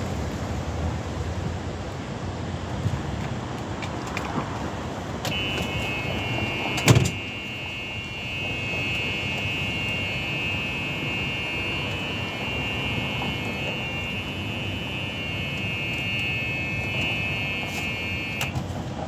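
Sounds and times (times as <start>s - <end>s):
high electronic buzz: 5.3s - 18.6s.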